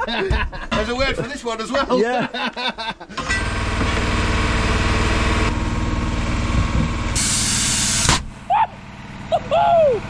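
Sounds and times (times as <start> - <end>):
air compressor running: 3.2 - 10.0
compressed air hiss: 7.2 - 8.2.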